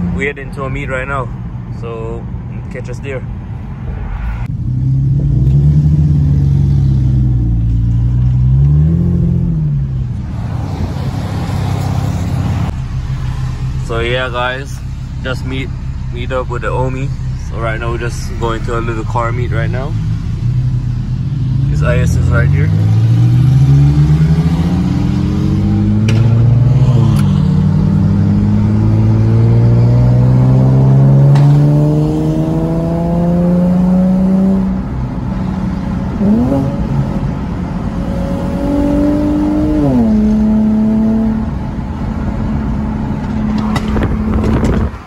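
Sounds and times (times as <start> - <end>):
car engine accelerating: 3.8 - 45.0.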